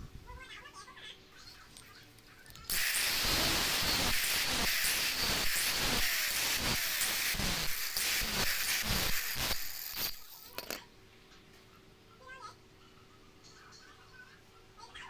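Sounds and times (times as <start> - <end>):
angle grinder grinding steel: 2.7 - 10.8.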